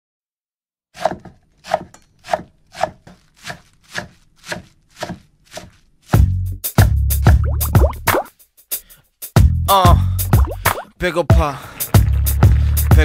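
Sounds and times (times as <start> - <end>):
knife chopping on wooden board: 1.0 - 7.0
music with heavy bass beat: 6.2 - 10.8.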